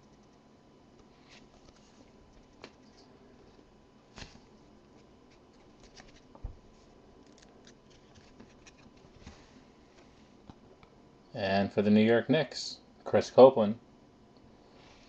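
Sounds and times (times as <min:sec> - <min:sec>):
trading cards shuffling: 0:01.0 - 0:03.1, 0:04.1 - 0:10.2.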